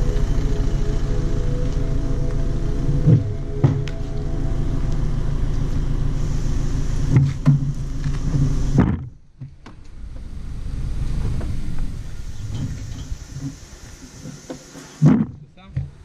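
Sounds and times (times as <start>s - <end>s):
trailer rolling over asphalt: 0.0s - 15.4s
trailer frame knocks and rattles: 7.1s - 9.8s.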